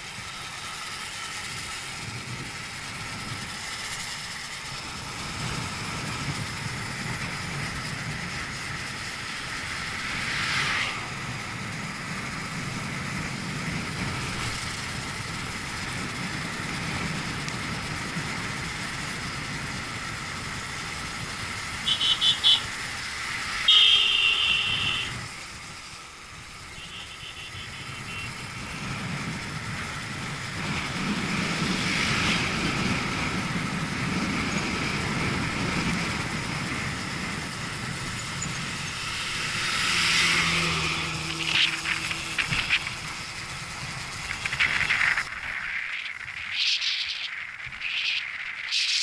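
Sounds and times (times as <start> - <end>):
motorcycle engine and wind: 0.0 - 49.0
vehicle horn beeping: 21.8 - 22.8, 23.7 - 25.2, 26.7 - 28.5.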